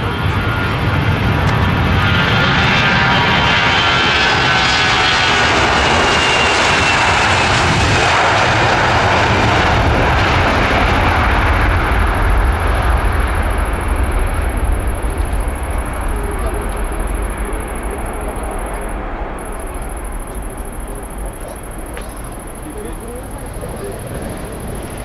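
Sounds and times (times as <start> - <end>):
jet airliner engines passing: 0.0 - 25.0.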